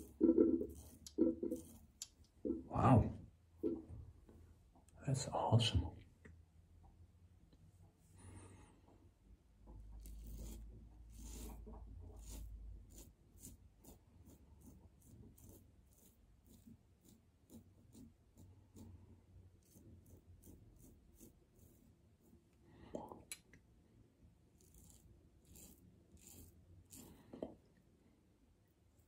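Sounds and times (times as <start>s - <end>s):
razor scraping stubble: 0.0s - 2.3s, 10.0s - 18.9s, 24.5s - 27.4s.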